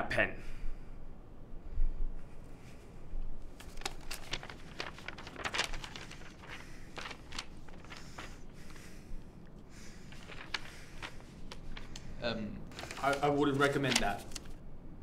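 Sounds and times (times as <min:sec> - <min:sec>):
paper rustling and crackling: 0:03.5 - 0:14.6.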